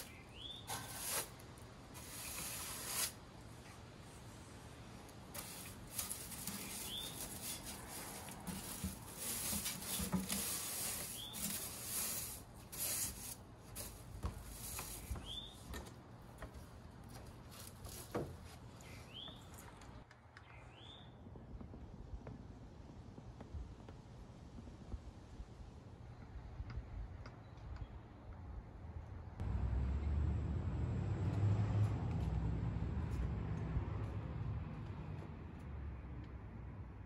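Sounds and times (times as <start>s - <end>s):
bird chirping: 0.0s - 0.9s, 6.5s - 7.4s, 11.2s - 11.5s, 15.0s - 15.7s, 18.8s - 19.8s, 20.4s - 21.2s
broom sweeping wet wooden boards: 0.0s - 3.2s, 5.2s - 15.6s.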